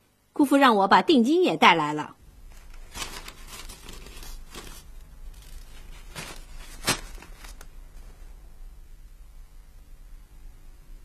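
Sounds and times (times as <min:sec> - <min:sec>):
banknote rustling: 0:02.4 - 0:08.1.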